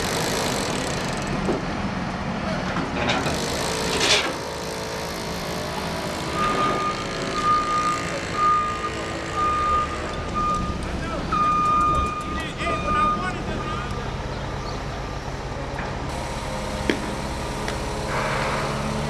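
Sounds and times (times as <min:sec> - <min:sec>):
truck engine running: 0:00.0 - 0:19.0
reversing alarm beeping: 0:06.2 - 0:13.4
air hiss: 0:17.9 - 0:19.0.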